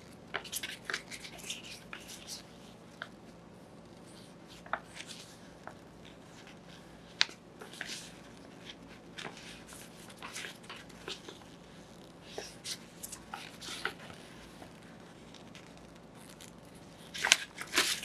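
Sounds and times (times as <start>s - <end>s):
paper leaflet rustling: 4.2s - 18.0s.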